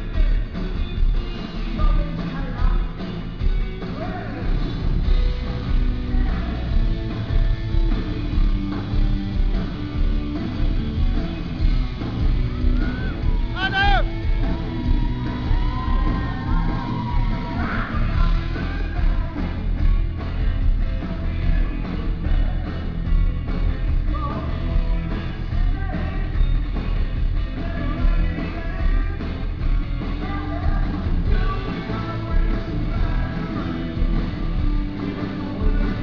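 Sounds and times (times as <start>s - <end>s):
live rock band playing: 0.0s - 36.0s
man singing lead vocals: 5.8s - 6.9s, 14.8s - 26.6s, 27.4s - 29.5s, 30.1s - 36.0s.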